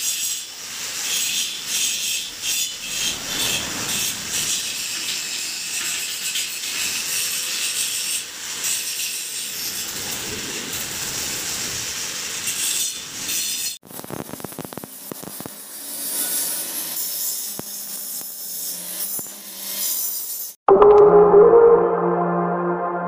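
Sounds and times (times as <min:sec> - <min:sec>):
scraping rasping noise: 0:01.7 - 0:07.0.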